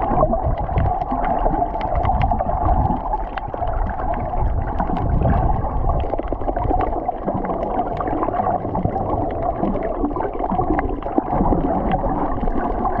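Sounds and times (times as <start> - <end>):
muffled underwater wash: 0.0 - 13.0
short clicks and crackles: 0.3 - 4.0.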